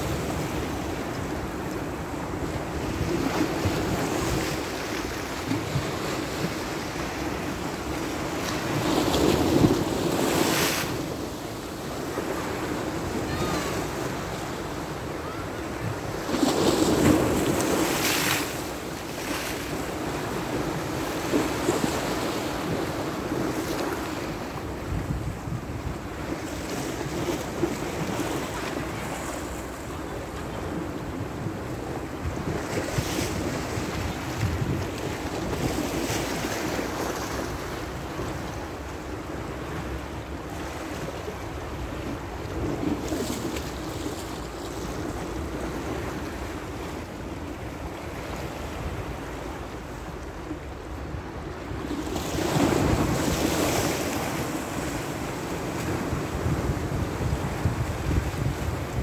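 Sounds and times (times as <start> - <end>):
wind buffeting microphone: 24.6 - 26.4, 30.8 - 36.7, 52.4 - 59.0.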